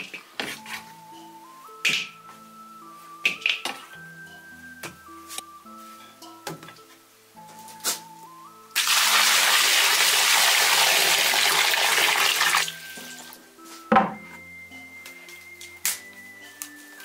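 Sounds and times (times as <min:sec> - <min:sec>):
water pouring into wok: 0:08.8 - 0:13.3.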